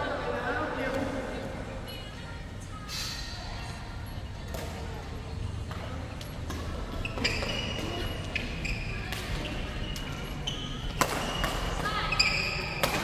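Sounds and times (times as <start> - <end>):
sneakers squeaking on wooden floor: 6.6 - 13.0
shuttlecock struck by rackets: 10.9 - 11.8.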